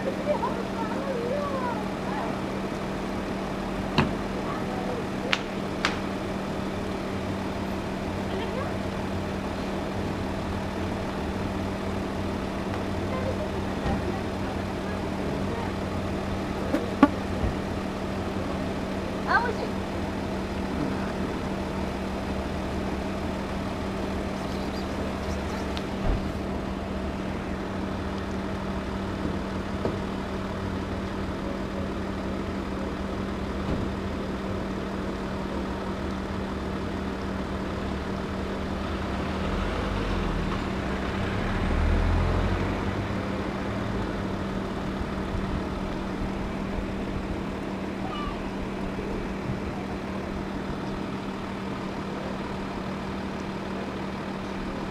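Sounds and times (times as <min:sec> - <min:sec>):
low motor hum: 0:00.0 - 0:54.9
vehicle passing rumble: 0:00.0 - 0:54.9.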